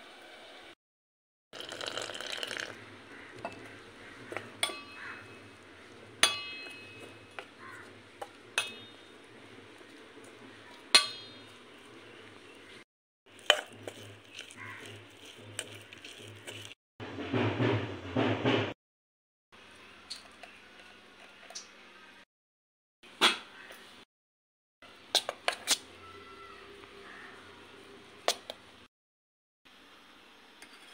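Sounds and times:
water pouring: 1.6 - 3.0
spoon stirring batter in bowl: 2.7 - 16.8
spoon clinking against bowl: 6.2 - 7.5.

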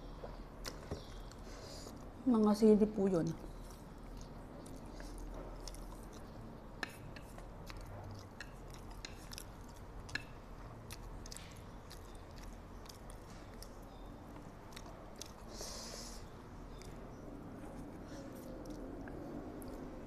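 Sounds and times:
person chewing noodles: 3.4 - 20.0
breathy hiss: 15.5 - 16.3.

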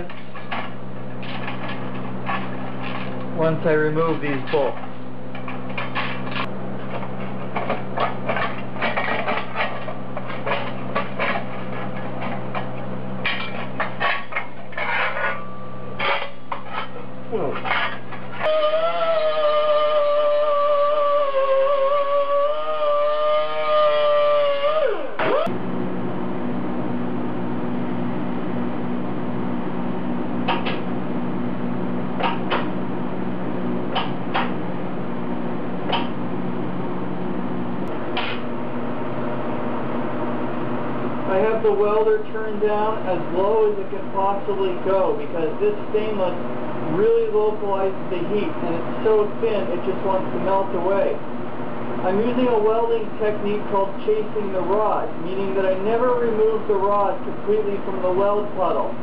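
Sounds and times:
steady low hum: 0.0 - 59.0
welding arc buzz and hiss: 16.0 - 38.7.

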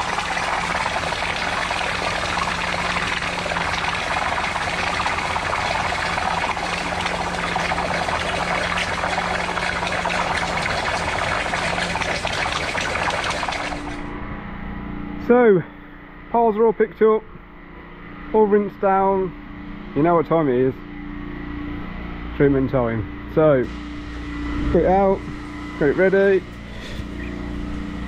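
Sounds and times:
pressure washer engine running: 0.0 - 14.1, 23.6 - 28.0.

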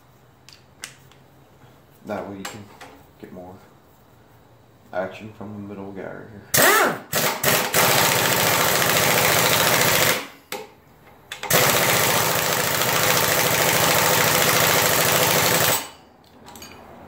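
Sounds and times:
impact wrench hammering: 6.6 - 10.6, 11.4 - 16.0.

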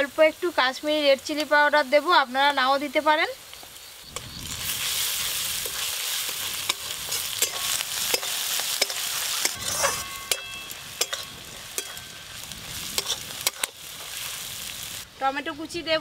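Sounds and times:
food sizzling in hot oil: 0.0 - 15.8
metal spatula scraping pan: 4.7 - 14.2.

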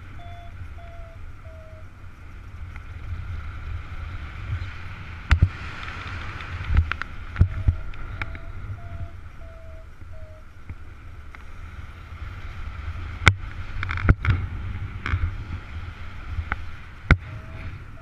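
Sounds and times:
wind rumbling on microphone: 0.0 - 18.0
short electronic beeps: 0.1 - 1.9, 7.5 - 10.4.

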